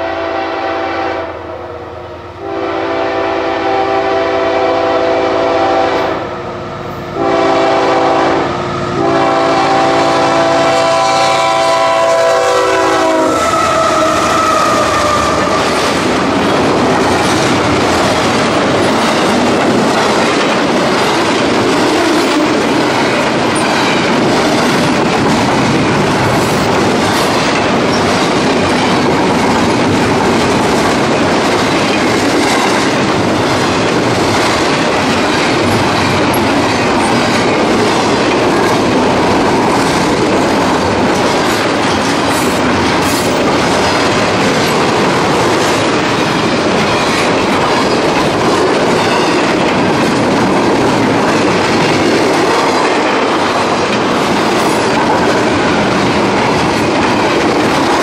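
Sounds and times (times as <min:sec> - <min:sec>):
freight train rumbling past: 0:00.0 - 0:58.0
wheels clicking over rail joints: 0:13.4 - 0:58.0.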